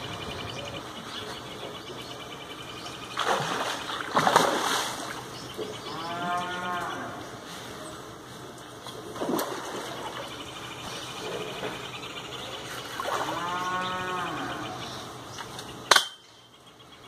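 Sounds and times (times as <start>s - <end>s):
cow mooing: 5.8s - 7.3s, 13.2s - 14.8s.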